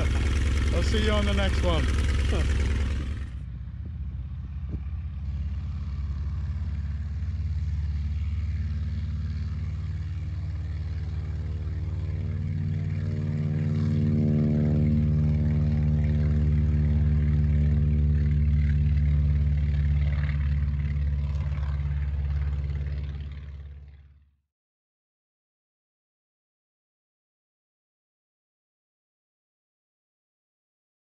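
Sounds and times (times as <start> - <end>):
light aircraft engine and propeller: 0.0 - 24.4.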